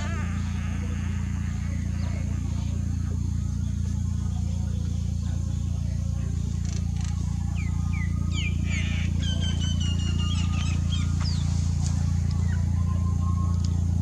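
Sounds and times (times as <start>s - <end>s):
long high call: 0.0s - 6.6s
steady low hum: 0.0s - 14.0s.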